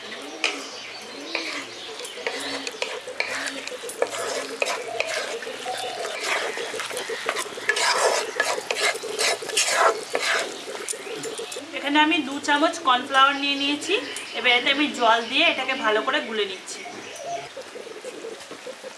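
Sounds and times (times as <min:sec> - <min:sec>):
spatula scraping a wok: 0:01.3 - 0:11.6
sauce frying in pan: 0:02.2 - 0:11.6.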